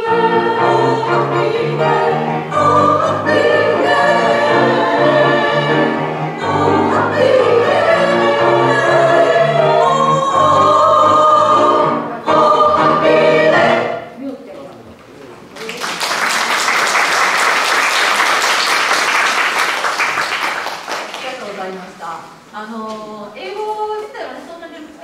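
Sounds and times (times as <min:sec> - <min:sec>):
grand piano accompaniment: 0:00.0 - 0:14.2
women's choir singing: 0:00.0 - 0:14.2.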